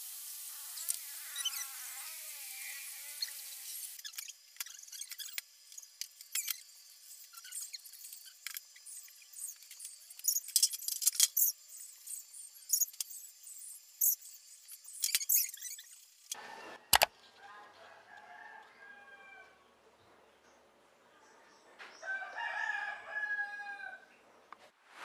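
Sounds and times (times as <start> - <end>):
faint rooster crowing: 16.4 - 19.8, 21.9 - 24.2.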